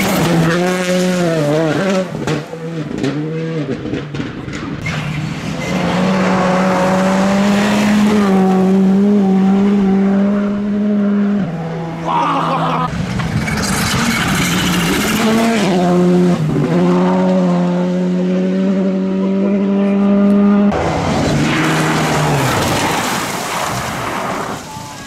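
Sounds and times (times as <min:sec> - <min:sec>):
rally car engine revving: 0:00.0 - 0:24.7
gravel noise: 0:21.1 - 0:25.0.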